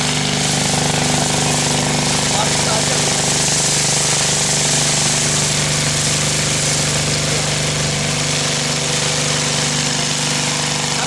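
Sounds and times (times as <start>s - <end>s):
engine idling: 0.0s - 11.0s
water jet splashing on steel floor: 0.0s - 11.0s.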